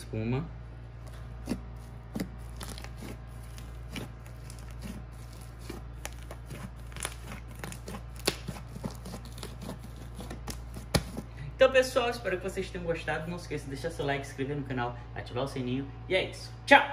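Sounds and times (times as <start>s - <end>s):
slime popping and crackling: 1.4s - 11.2s.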